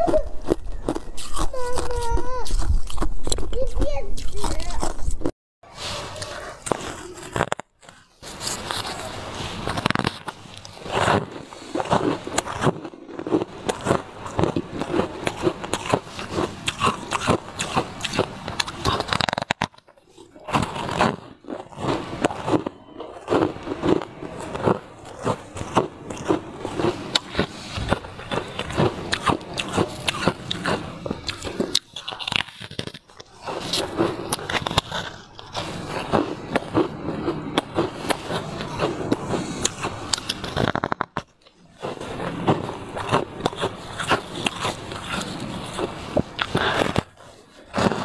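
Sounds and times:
ice crunched between teeth: 6.2s - 48.0s.

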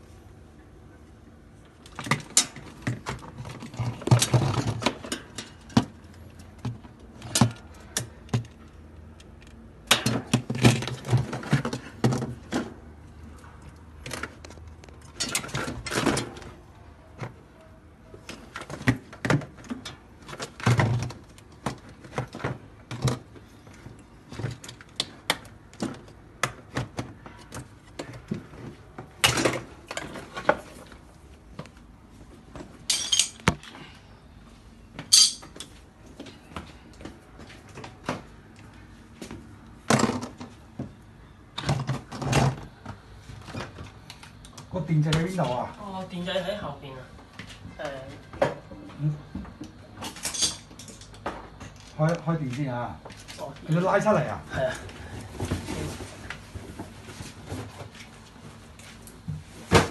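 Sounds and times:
plastic parts clicking and rattling: 13.7s - 16.5s.

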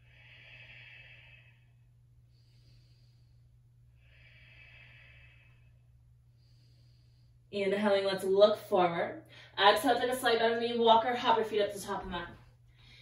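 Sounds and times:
woman breathing slowly: 0.0s - 7.6s, 12.6s - 13.0s
low steady hum: 0.0s - 13.0s.

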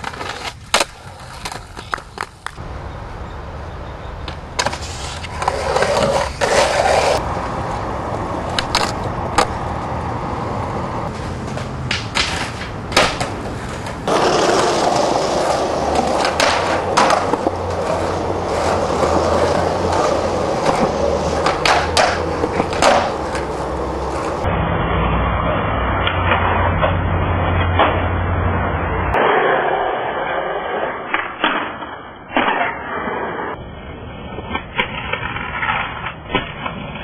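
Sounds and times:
skateboard wheels rolling on concrete: 0.0s - 37.0s
skateboard tail popping and landing: 8.5s - 9.8s, 11.2s - 24.4s.

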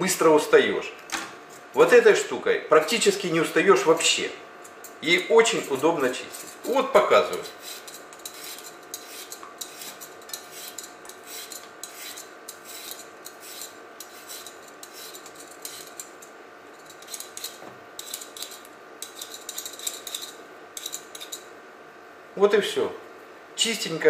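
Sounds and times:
peeler scraping potato skin: 4.6s - 21.4s.

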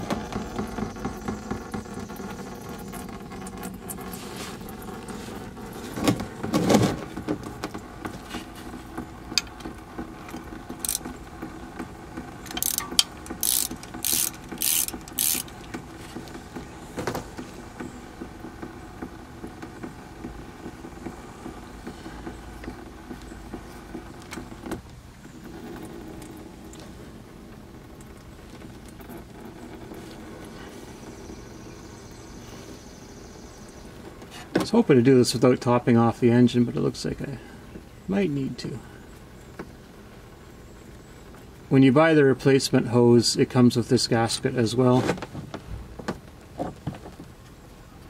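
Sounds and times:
oil pattering: 0.0s - 48.0s
small mechanical clicks and rattles: 10.3s - 11.2s, 12.4s - 15.8s
short hissing rasps: 12.5s - 15.6s.

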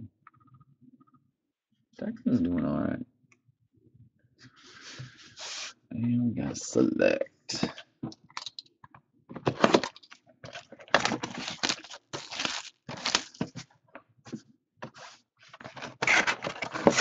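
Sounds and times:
plastic shrink-wrap tearing: 9.6s - 13.4s.

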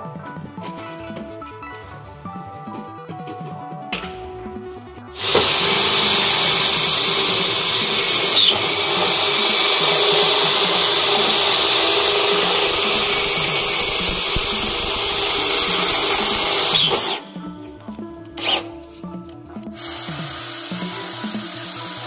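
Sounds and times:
electric drill boring through steel: 5.2s - 17.3s, 18.4s - 18.7s, 19.8s - 22.0s.

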